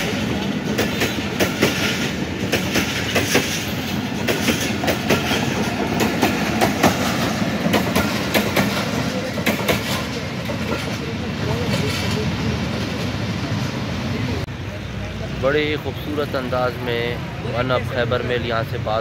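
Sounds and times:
clickety-clack of rail joints: 0:00.0 - 0:13.7
train wheels rumbling on track: 0:00.0 - 0:19.0.

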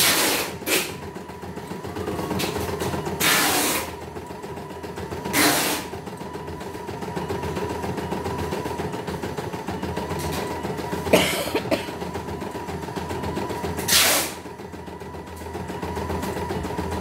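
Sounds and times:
embroidery machine stitching: 0:00.0 - 0:17.0.

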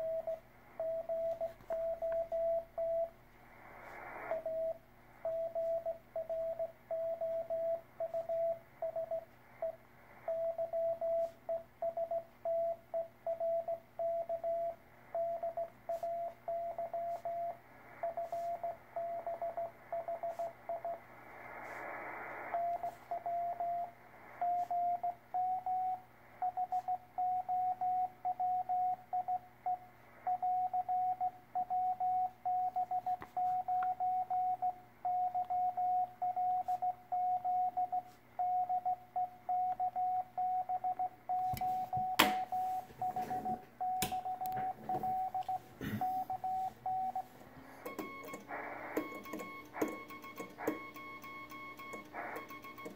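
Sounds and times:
morse code beeps: 0:00.0 - 0:03.2, 0:04.3 - 0:21.0, 0:22.5 - 0:52.9
receiver hiss: 0:00.0 - 0:38.6, 0:41.3 - 0:52.9
burst of static: 0:03.4 - 0:04.5, 0:17.6 - 0:24.7, 0:47.5 - 0:50.9, 0:52.0 - 0:52.6.

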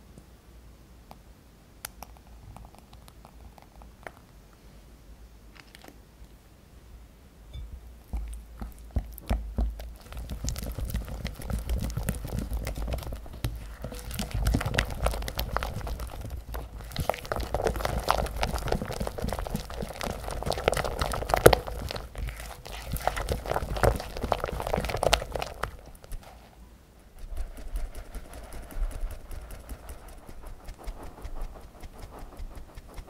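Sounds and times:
whisk tapping glass bowl: 0:07.5 - 0:25.8
whisk squelching in batter: 0:08.1 - 0:26.3, 0:27.1 - 0:33.0.

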